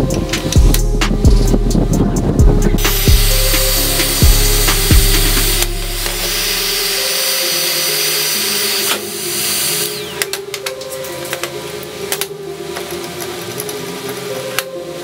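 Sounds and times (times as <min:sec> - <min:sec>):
heat gun fan hissing: 0:02.8 - 0:10.6
heat gun whine spinning down: 0:02.8 - 0:10.6.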